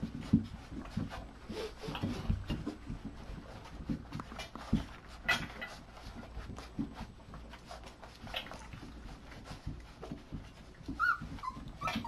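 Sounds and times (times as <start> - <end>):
puppies scrambling: 0.0 - 12.0
soft taps and rustles: 0.0 - 12.0
high puppy squeak: 10.6 - 12.0.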